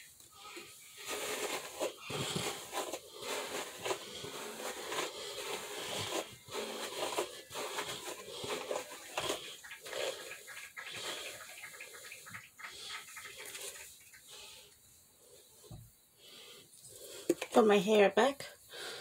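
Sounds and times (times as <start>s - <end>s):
hairbrush swishing through hair: 0.0s - 11.6s.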